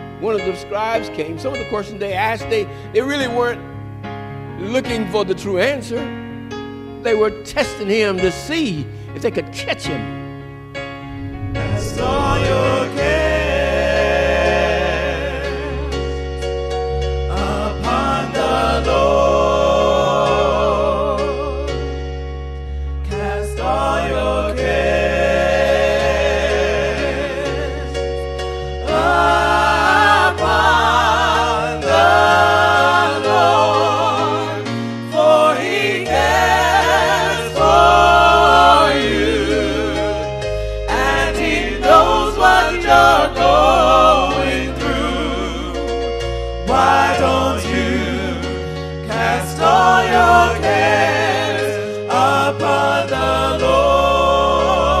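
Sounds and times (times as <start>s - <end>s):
sustained low bass notes: 11.0s - 14.6s
gospel singing: 11.0s - 22.2s, 23.0s - 55.0s.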